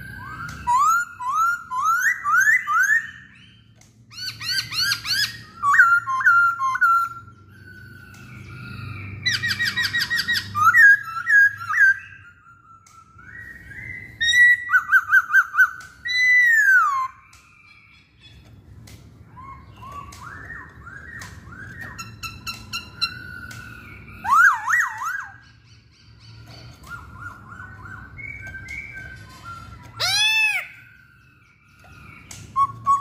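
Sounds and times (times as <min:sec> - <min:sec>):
bird singing whistled phrases: 0:00.0 - 0:18.1, 0:19.3 - 0:33.0.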